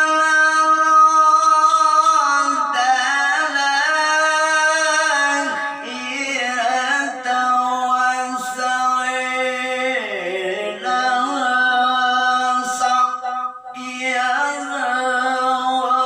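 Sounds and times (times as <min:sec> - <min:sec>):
man reciting melodically: 0:00.0 - 0:16.0.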